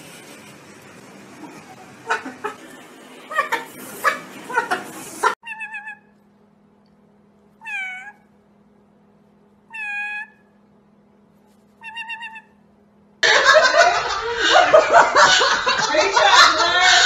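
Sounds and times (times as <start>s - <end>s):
parrot high calls: 5.4s - 6.2s, 7.6s - 8.3s, 9.7s - 10.6s, 11.8s - 12.6s.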